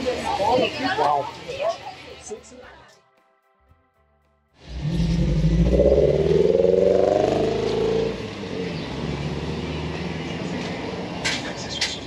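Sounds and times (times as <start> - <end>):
car engine accelerating: 4.6 - 11.9
road noise rushing: 4.6 - 12.0.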